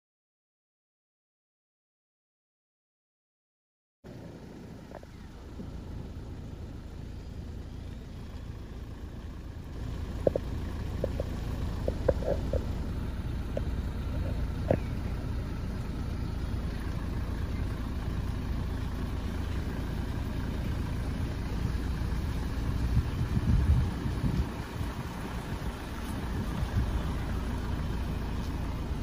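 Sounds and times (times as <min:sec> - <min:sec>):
diesel engine idling: 0:04.1 - 0:29.0.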